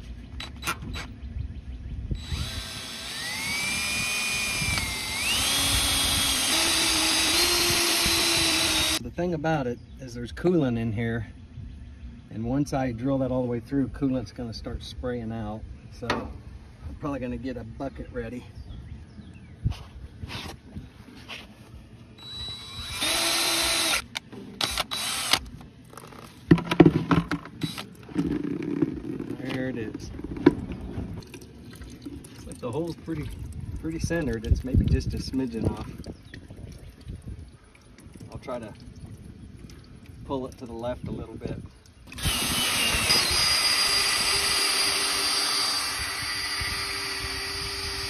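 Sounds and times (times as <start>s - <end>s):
cordless drill motor whining: 2.2s - 9.0s, 22.2s - 25.5s, 42.1s - 48.0s.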